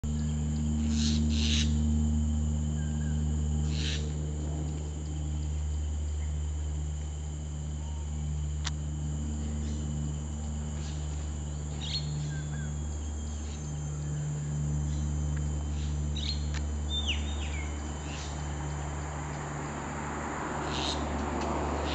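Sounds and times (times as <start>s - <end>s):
insect drone: 0.0s - 21.9s
steady low hum: 0.0s - 21.9s
bird chirps: 10.8s - 15.1s, 15.7s - 18.4s.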